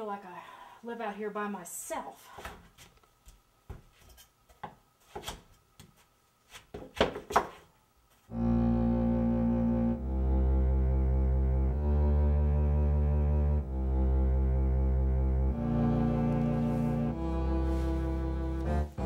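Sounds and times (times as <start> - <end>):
low cello and double bass music: 8.3 - 19.0.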